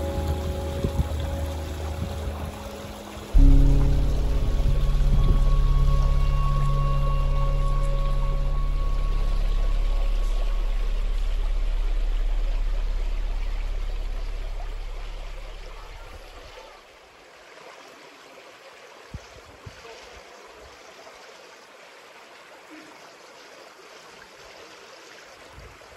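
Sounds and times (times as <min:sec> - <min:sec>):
low background music: 0:00.0 - 0:15.8
stream flowing over rocks: 0:00.0 - 0:25.9.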